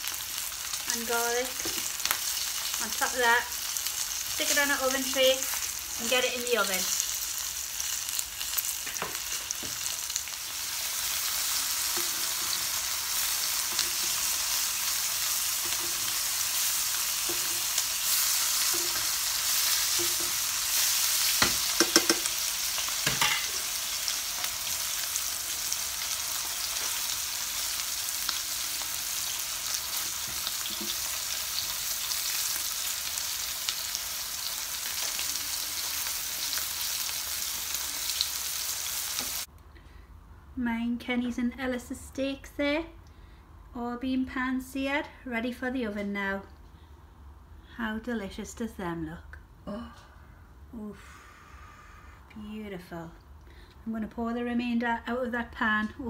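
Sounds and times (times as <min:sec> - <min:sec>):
steak sizzling in a pan: 0:00.0 - 0:39.5.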